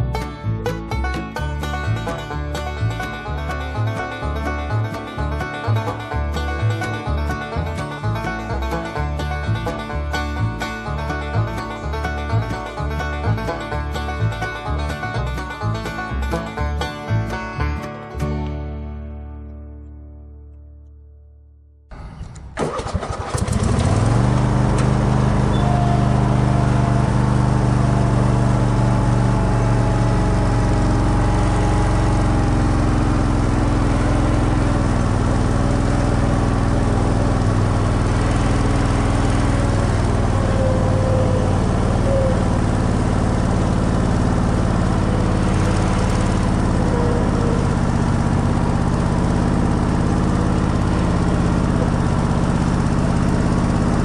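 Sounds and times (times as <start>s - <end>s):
lawn mower engine running: 0.0s - 18.6s, 21.9s - 54.0s.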